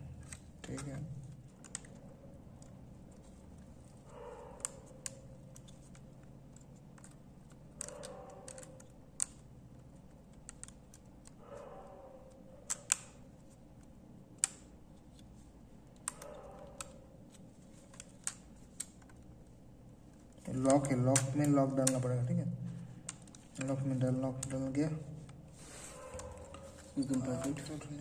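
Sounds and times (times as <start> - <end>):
small sharp clicks and taps: 0.1 - 3.7, 4.5 - 11.4, 12.3 - 19.3
soft handling rustles: 22.6 - 28.0.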